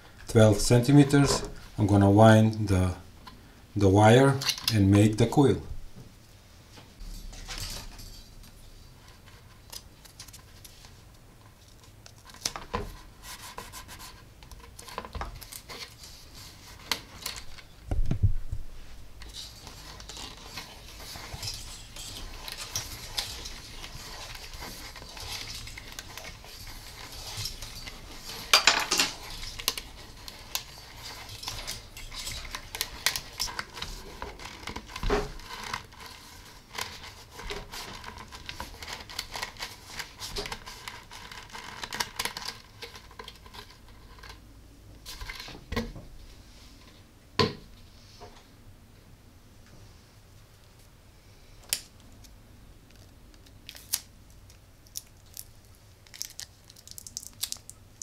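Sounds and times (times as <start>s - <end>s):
wire rustling and clicking: 6.8s - 18.3s, 19.2s - 45.9s, 51.6s - 58.0s.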